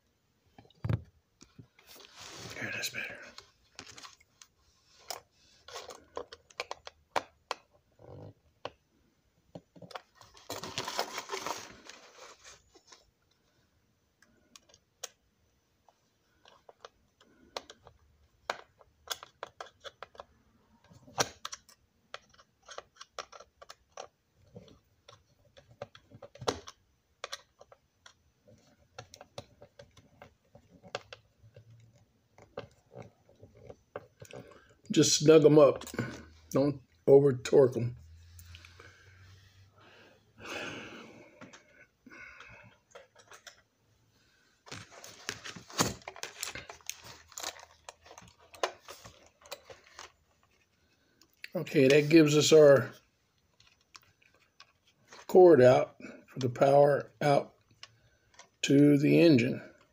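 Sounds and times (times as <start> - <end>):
rustling scrape: 1.9 - 2.6.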